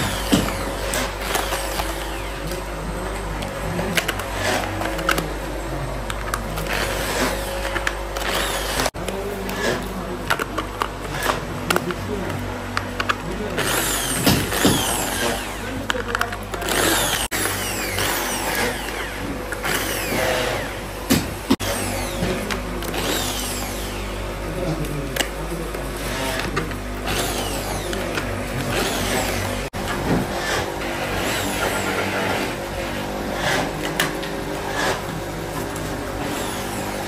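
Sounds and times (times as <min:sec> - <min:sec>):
electric drill whining: 0:00.0 - 0:02.8, 0:06.6 - 0:09.0, 0:13.0 - 0:24.3, 0:26.0 - 0:35.2, 0:36.0 - 0:37.0
parts clicking and knocking: 0:00.0 - 0:24.1.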